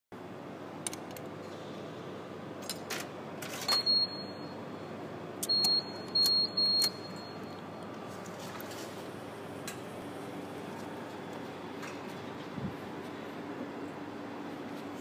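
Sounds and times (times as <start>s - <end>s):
keypad beeps: 3.6s - 4.6s, 5.4s - 7.6s.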